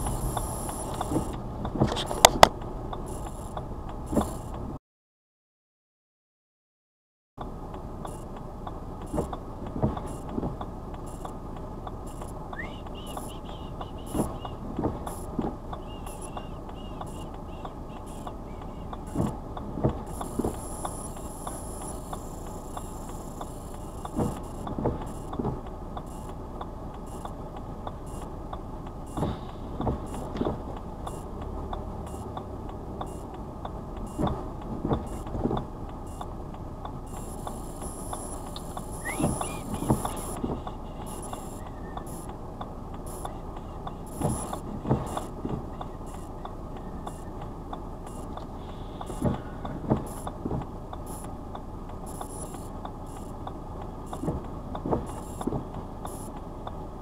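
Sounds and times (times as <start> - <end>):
indicator ticking: 0.0 - 1.4, 2.2 - 4.6, 7.4 - 56.8
car engine idling: 0.0 - 4.8, 7.4 - 57.0
windscreen wipers thumping: 0.0 - 4.8, 7.4 - 57.0.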